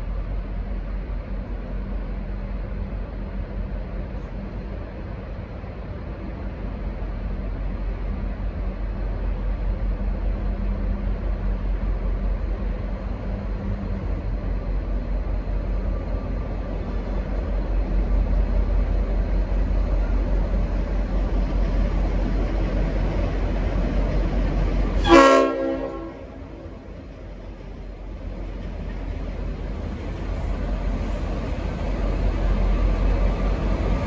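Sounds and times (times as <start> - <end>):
diesel locomotive rumbling: 0.0 - 34.0
train horn blast: 25.0 - 26.9.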